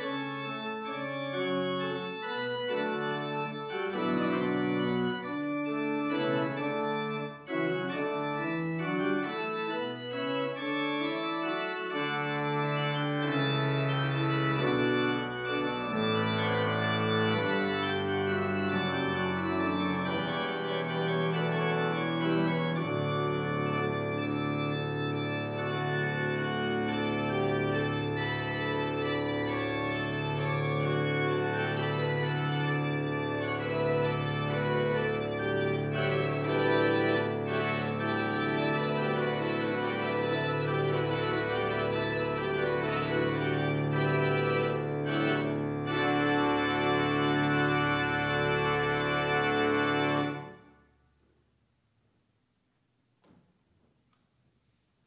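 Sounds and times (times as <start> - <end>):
church organ chords: 0.0 - 50.8.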